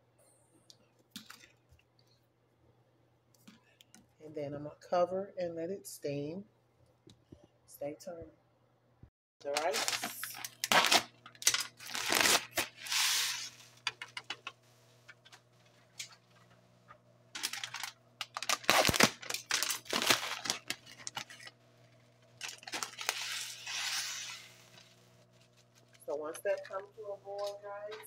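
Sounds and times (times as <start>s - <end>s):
paper packaging crinkling and tearing: 9.4s - 16.5s, 17.4s - 28.0s.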